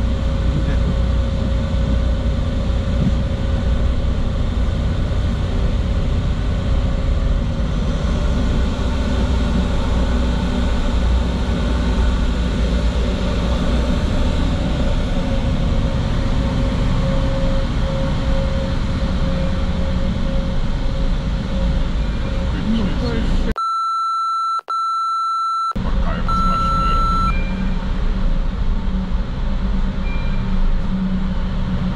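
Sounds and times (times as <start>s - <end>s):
engine rumble: 0.0s - 23.6s, 25.8s - 31.9s
faint hum: 24.8s - 31.9s.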